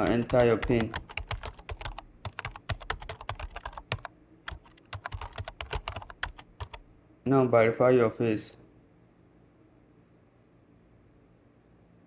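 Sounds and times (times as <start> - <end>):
typing on computer keyboard: 0.0 - 6.8.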